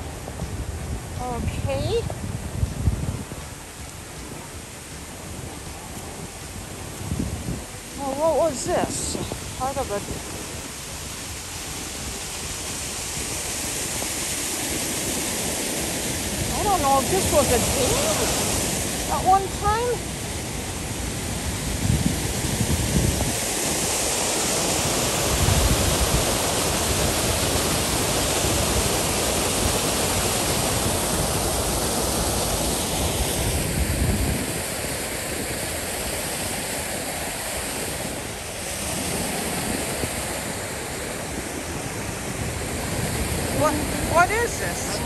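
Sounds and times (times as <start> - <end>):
river water rushing: 0.0 - 45.0
wind buffeting microphone: 0.0 - 45.0.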